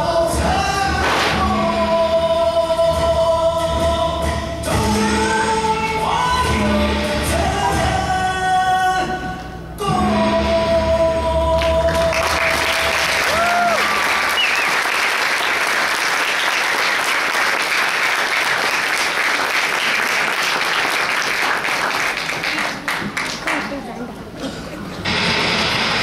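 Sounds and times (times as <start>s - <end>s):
audience applauding: 11.6s - 23.9s.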